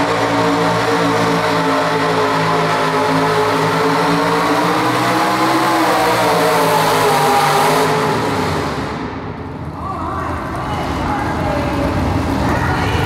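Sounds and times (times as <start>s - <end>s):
truck engine revving hard: 0.0s - 13.0s.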